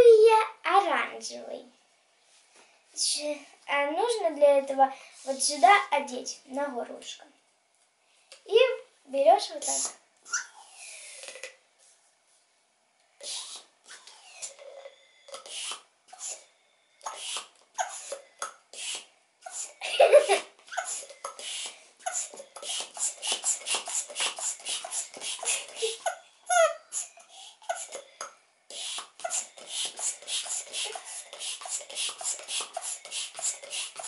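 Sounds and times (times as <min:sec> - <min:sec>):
hand pump puffs of air: 0:13.2 - 0:19.8, 0:20.7 - 0:26.1, 0:26.9 - 0:28.1, 0:28.7 - 0:34.0.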